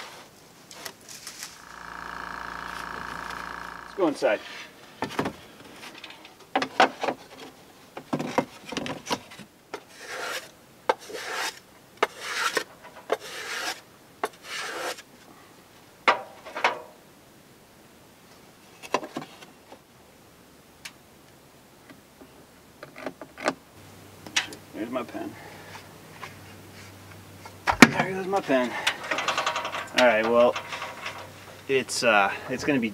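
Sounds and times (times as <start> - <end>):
block plane scraping wood: 9.9 - 15.0.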